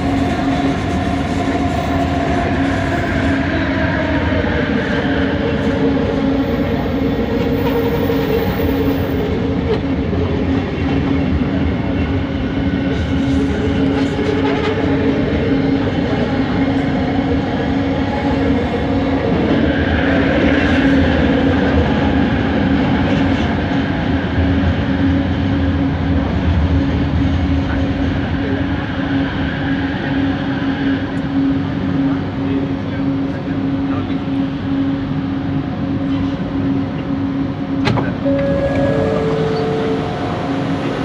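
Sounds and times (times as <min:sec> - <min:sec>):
rumble of wheels on track: 0:00.0 - 0:41.0
train motor hum: 0:34.0 - 0:41.0.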